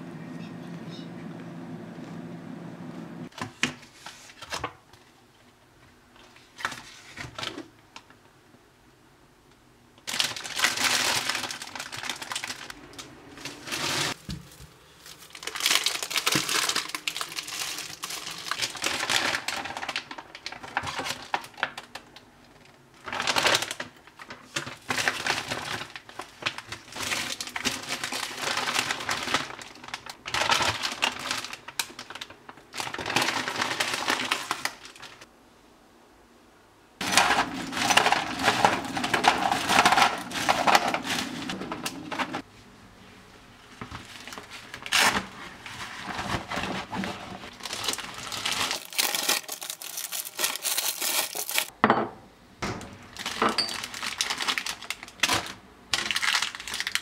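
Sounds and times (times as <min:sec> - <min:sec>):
plastic bags crinkling: 0:10.0 - 0:35.3, 0:37.0 - 0:42.5, 0:43.8 - 0:51.8, 0:53.0 - 0:57.0.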